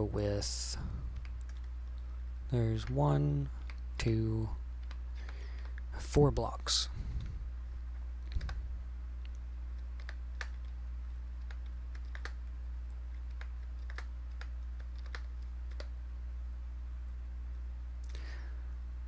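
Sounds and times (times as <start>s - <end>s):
steady low hum: 0.0s - 19.0s
keyboard keystrokes: 8.2s - 8.6s, 9.8s - 10.8s, 11.4s - 12.4s, 13.1s - 15.9s.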